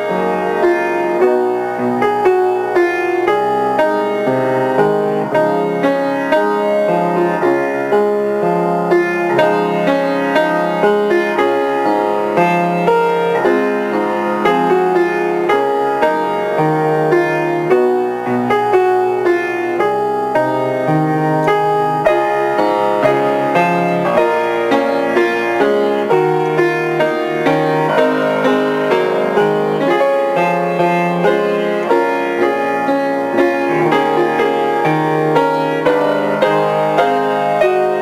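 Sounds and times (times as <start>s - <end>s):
solo piano playing: 0.0s - 38.0s.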